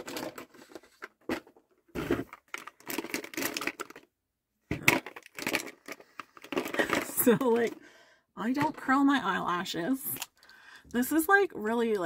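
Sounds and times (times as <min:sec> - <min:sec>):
packaging clicks and rustles: 0:00.0 - 0:04.1, 0:04.8 - 0:07.9.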